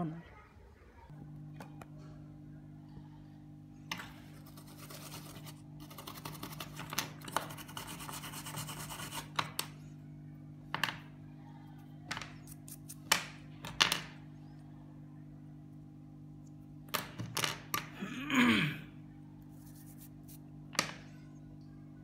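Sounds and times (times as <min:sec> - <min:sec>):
hands scraping small parts: 0:12.1 - 0:13.8.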